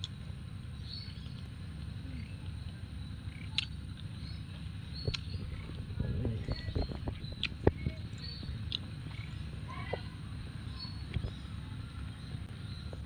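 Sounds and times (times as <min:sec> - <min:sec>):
chewing fruit: 0:01.0 - 0:10.0.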